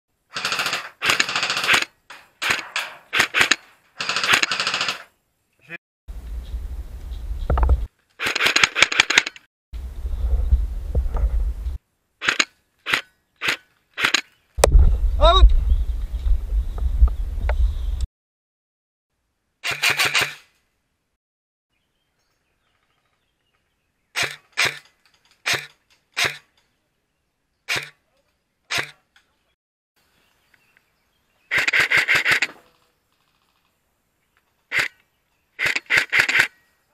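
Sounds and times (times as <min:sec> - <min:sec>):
gunshots: 0:00.3 - 0:05.1
replica gun automatic fire: 0:00.4 - 0:05.1
low rumble on microphone: 0:06.1 - 0:07.9, 0:09.8 - 0:11.8, 0:14.6 - 0:18.1.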